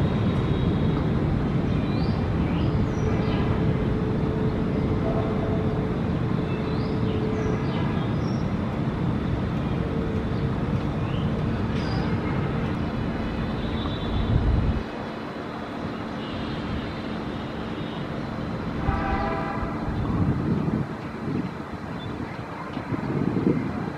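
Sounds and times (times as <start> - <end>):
jet engines rumbling: 0.0 - 16.2.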